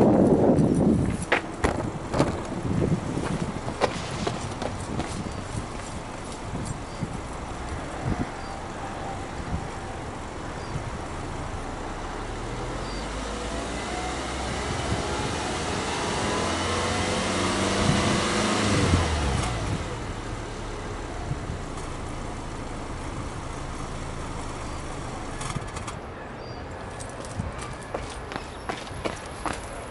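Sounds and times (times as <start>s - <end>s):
car engine revving: 9.5s - 25.9s.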